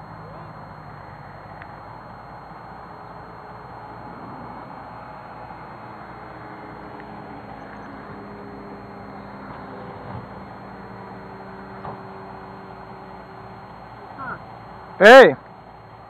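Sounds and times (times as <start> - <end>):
motor humming: 0.0 - 16.0.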